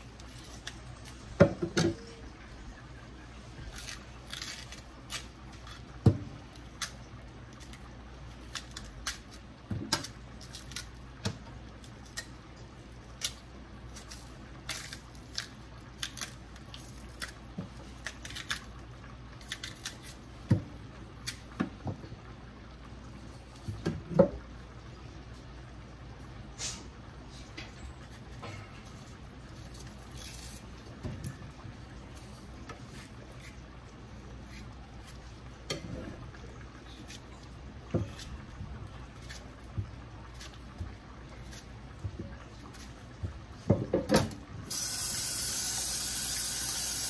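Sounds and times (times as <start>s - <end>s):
knife peeling plantain: 0.1s - 1.3s, 3.6s - 5.9s, 8.4s - 11.0s, 13.2s - 18.7s, 19.4s - 20.2s, 28.1s - 30.8s, 34.4s - 35.3s, 38.0s - 38.4s, 39.1s - 39.6s, 40.2s - 40.7s.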